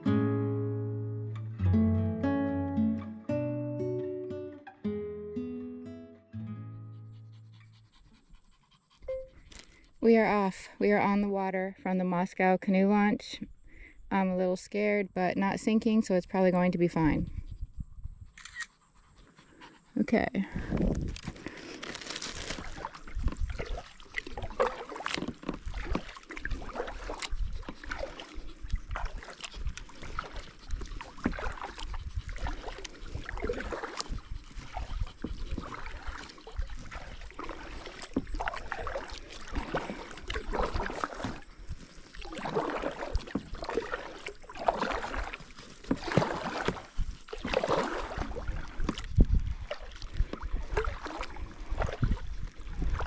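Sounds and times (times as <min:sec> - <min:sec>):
paddle splashing in water: 0:20.5 - 0:53.0.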